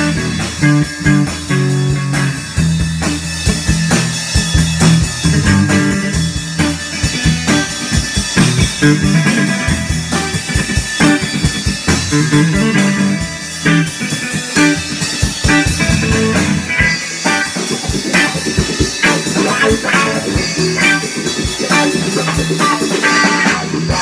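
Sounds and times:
drum kit playing: 0.0s - 24.0s
guitar low ringing notes: 4.6s - 18.1s.

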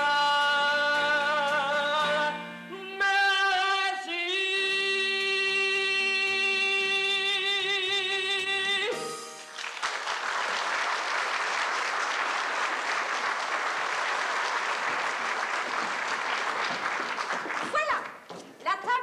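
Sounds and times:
man singing with vibrato: 0.0s - 9.4s
audience applause: 9.5s - 18.2s.

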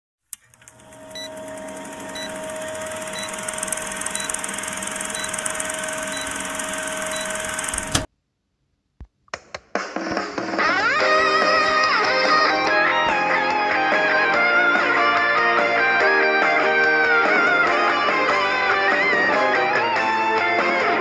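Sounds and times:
sharp clicks: 0.3s - 8.1s
film projector rattling: 0.4s - 8.1s
steady hum: 0.4s - 8.1s
short high beeps: 2.1s - 7.7s.

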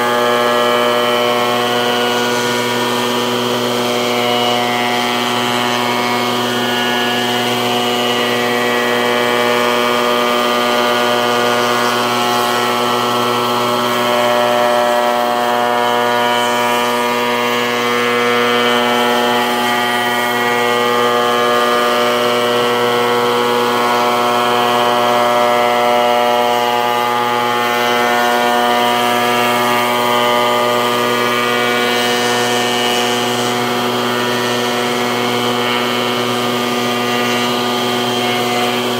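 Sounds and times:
spindle shaper hum and whine: 0.0s - 38.9s.

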